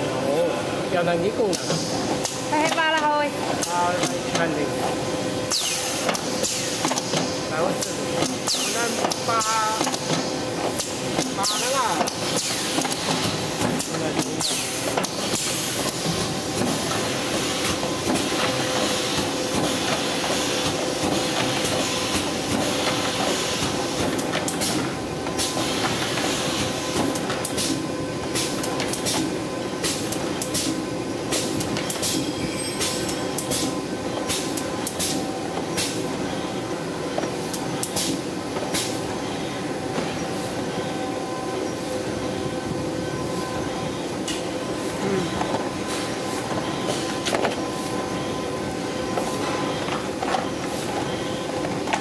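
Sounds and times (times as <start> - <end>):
constant machine hum: 0.0 - 52.0
sharp mechanical clicks and knocks: 12.0 - 16.0.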